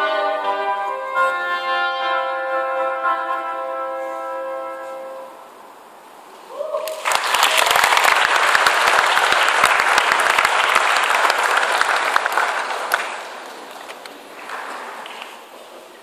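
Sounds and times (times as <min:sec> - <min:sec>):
audience applause: 0:06.8 - 0:15.4.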